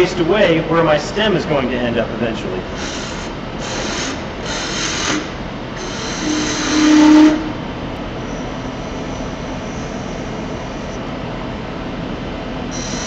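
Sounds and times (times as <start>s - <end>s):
lathe running with high whine: 0.0s - 13.0s
gouge cutting wood on lathe: 2.8s - 7.3s.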